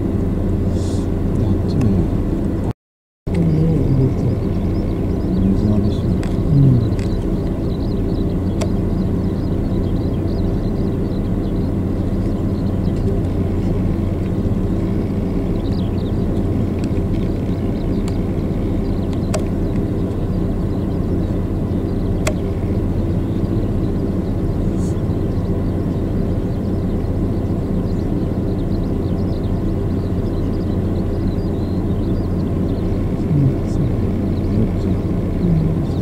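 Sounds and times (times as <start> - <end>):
engine idling: 0.0 - 2.7, 3.3 - 36.0
sharp clicks: 6.0 - 8.8, 15.2 - 20.2, 22.2 - 22.7.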